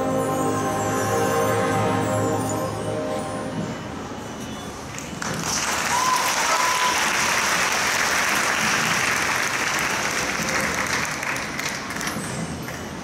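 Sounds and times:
band music: 0.0s - 4.4s
audience applauding: 5.0s - 12.1s.

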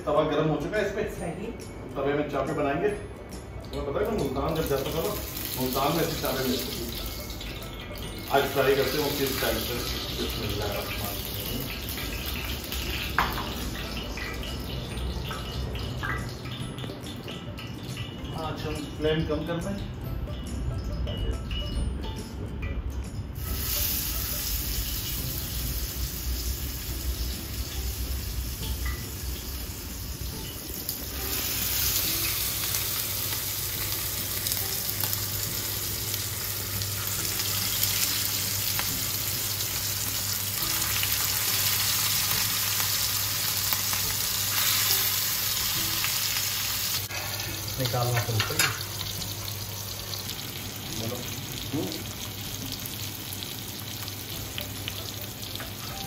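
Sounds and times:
meat sizzling on a hot pan: 4.5s - 14.6s, 23.4s - 55.8s.

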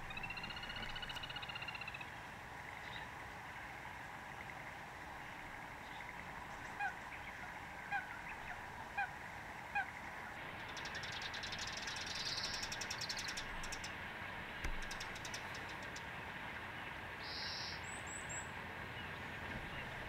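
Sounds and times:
sparrows chirping rapidly: 10.6s - 14.0s, 14.7s - 16.0s.

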